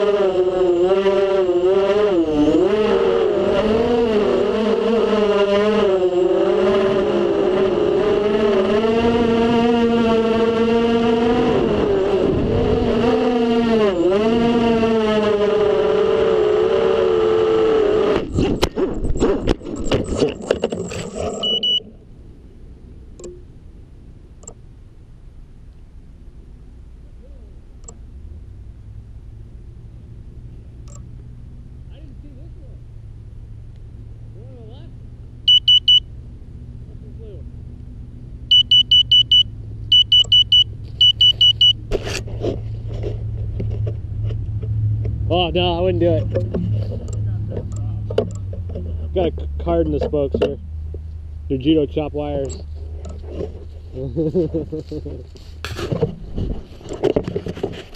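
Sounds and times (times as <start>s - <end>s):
quadcopter motors whining: 0.0s - 21.9s
high buzzer beeps: 21.2s - 21.9s, 35.5s - 36.1s, 38.5s - 41.8s
frame tumbling hits and scrapes: 41.8s - 45.2s, 52.8s - 54.1s, 55.4s - 57.9s.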